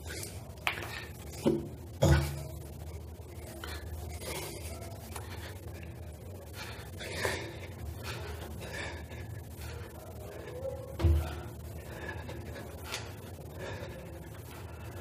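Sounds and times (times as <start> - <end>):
man breathing hard: 3.4 - 15.0.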